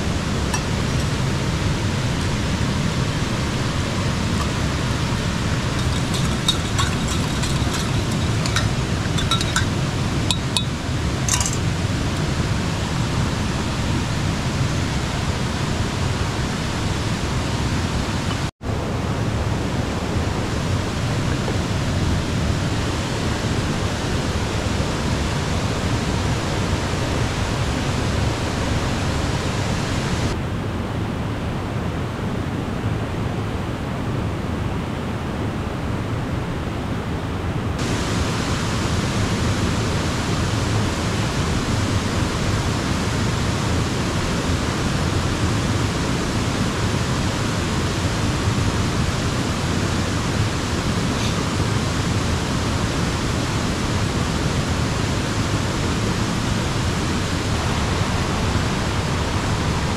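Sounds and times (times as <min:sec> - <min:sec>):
river rushing: 0:00.0 - 0:30.4, 0:37.4 - 0:59.9
light clinks: 0:05.7 - 0:12.3.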